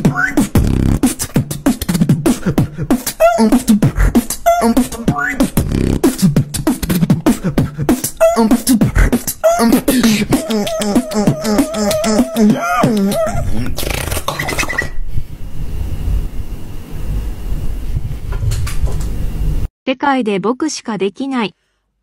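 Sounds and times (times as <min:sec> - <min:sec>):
beatboxing into microphone: 0:00.0 - 0:15.0
vocal pitch glides: 0:00.0 - 0:15.0
held sung tone: 0:09.4 - 0:13.5.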